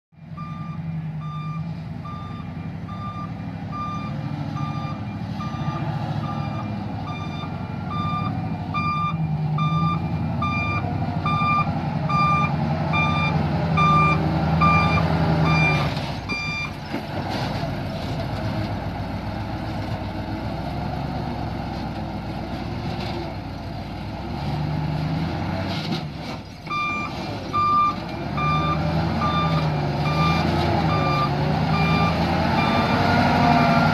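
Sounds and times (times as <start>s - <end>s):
reversing alarm beeping: 0.2s - 16.8s, 26.7s - 33.9s
diesel engine running: 0.2s - 33.9s.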